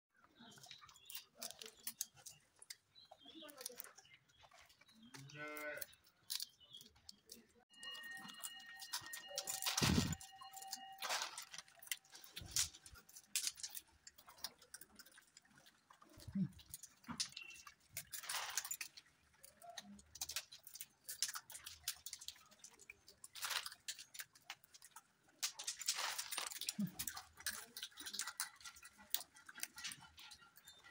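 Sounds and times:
peanuts being handled: 0:00.2 - 0:30.9.

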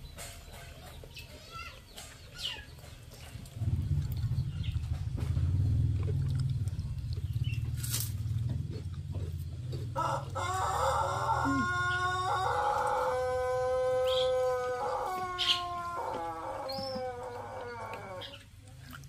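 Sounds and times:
roosters crowing: 0:09.8 - 0:18.5.

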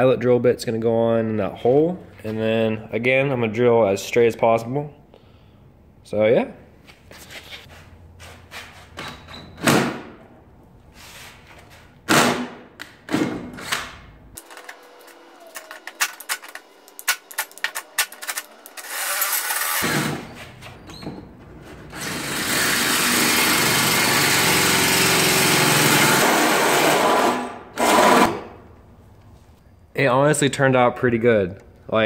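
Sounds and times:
drill hole saw cutting metal: 0:14.4 - 0:20.2, 0:22.0 - 0:28.4.

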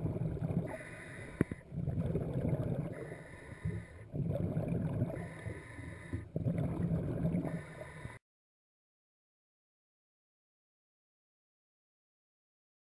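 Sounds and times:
bubbly regulator exhalations: 0:00.0 - 0:08.2
regulator inhaling hiss: 0:00.7 - 0:01.6, 0:03.0 - 0:04.1, 0:05.2 - 0:06.3.

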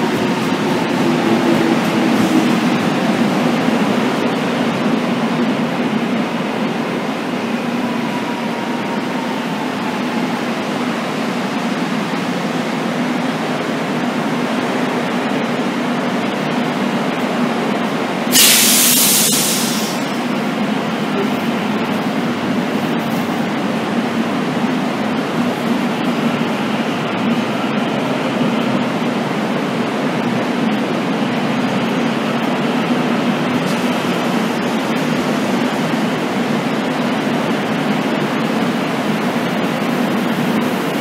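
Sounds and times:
electric train hum: 0:00.0 - 0:41.0
compressed air hiss: 0:18.3 - 0:20.2.

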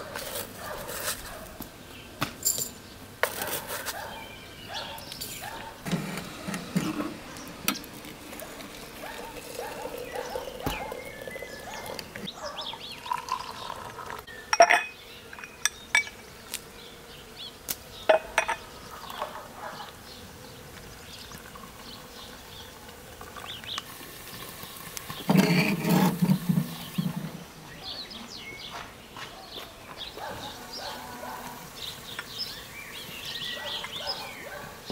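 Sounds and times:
tea pouring: 0:05.9 - 0:15.5, 0:20.8 - 0:27.4
tea glasses clinking on saucers: 0:09.1 - 0:12.0, 0:13.0 - 0:13.9, 0:14.5 - 0:16.2, 0:18.1 - 0:18.6.

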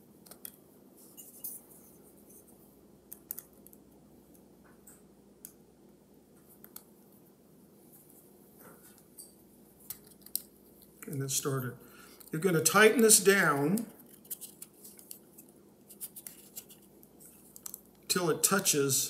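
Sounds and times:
light metal scraping: 0:01.0 - 0:02.5.

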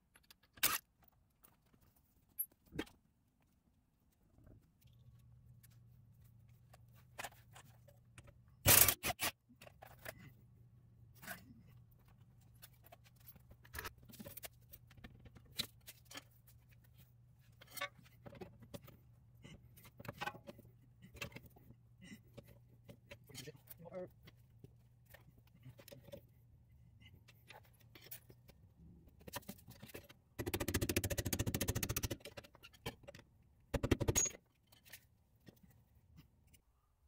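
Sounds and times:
metal tools clicking and scraping: 0:33.9 - 0:35.1.

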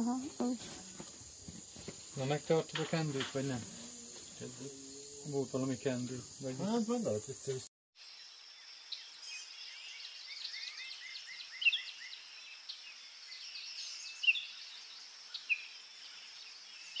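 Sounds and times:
high-pitched insect drone: 0:00.0 - 0:08.4.

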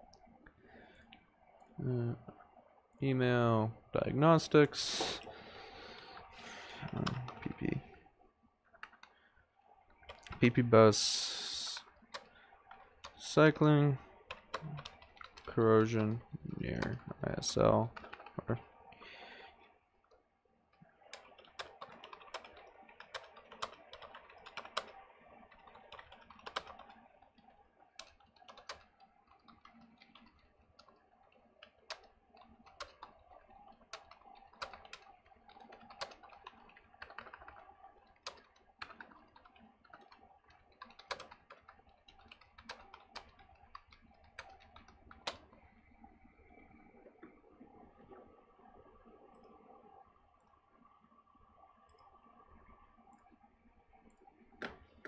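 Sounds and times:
typing on keyboard: 0:06.8 - 0:07.6, 0:14.3 - 0:17.0, 0:17.9 - 0:18.4, 0:21.1 - 0:27.4, 0:28.0 - 0:45.6.

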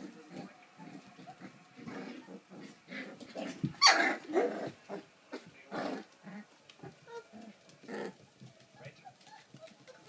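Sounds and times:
puppies growling: 0:00.0 - 0:10.0
puppy yapping: 0:03.8 - 0:05.0.

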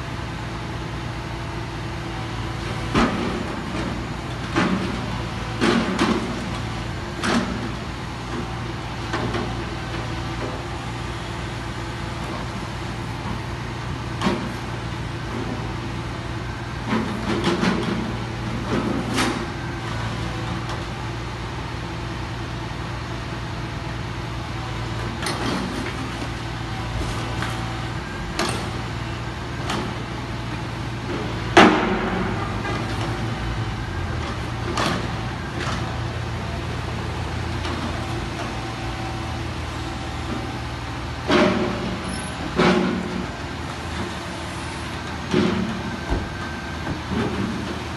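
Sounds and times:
diesel engine running: 0:00.0 - 0:47.9
crane grab clanks and knocks: 0:02.7 - 0:10.7, 0:13.2 - 0:15.9, 0:16.8 - 0:19.7, 0:25.0 - 0:35.9, 0:41.2 - 0:44.1, 0:45.0 - 0:47.9.

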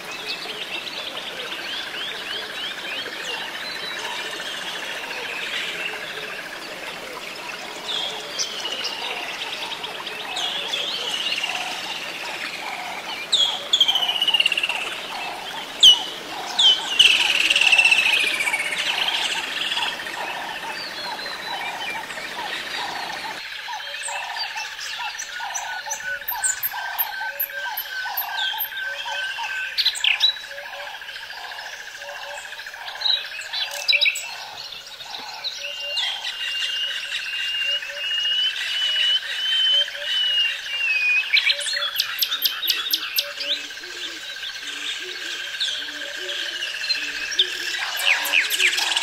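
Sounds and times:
nightingale singing: 0:00.0 - 0:49.0
pulsing calls: 0:06.1 - 0:33.0, 0:39.2 - 0:49.0.

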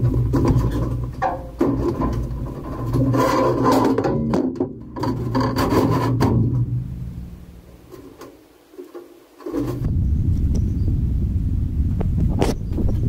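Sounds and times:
scraping and knocking on aluminum hull: 0:00.0 - 0:09.9.

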